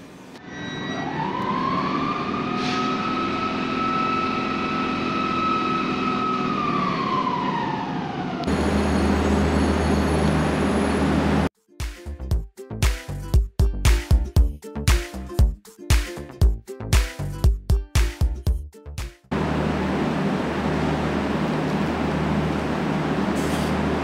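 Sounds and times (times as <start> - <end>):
electric locomotive whine: 0.1 - 11.5
diesel railcar engine hum: 2.5 - 11.5, 19.3 - 24.0.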